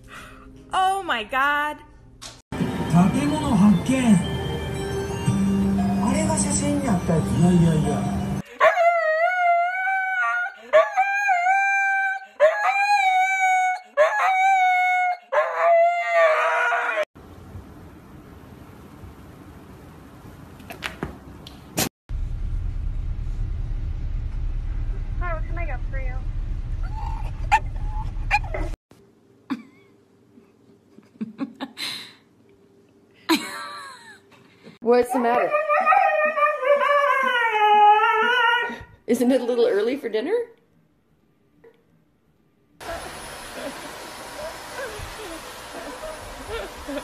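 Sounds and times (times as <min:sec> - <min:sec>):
husky howling: 0:08.6 - 0:17.1, 0:35.2 - 0:38.8.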